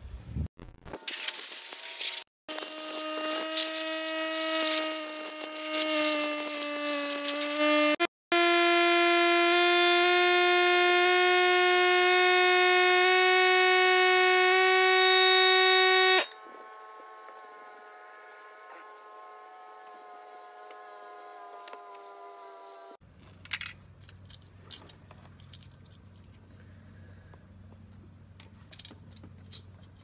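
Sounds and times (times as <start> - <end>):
pressure washer whining: 1.1 - 23.0.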